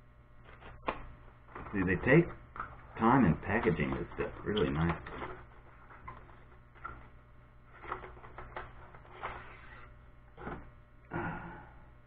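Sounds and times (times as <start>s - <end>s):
low mains hum: 0.0s - 12.0s
rustles and scrapes of handling: 1.5s - 10.7s.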